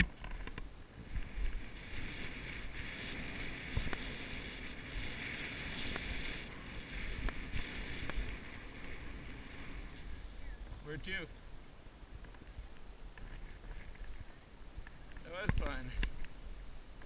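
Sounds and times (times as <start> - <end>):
wind rumble on microphone: 0.0 - 17.0
skis hissing over snow: 1.0 - 11.2.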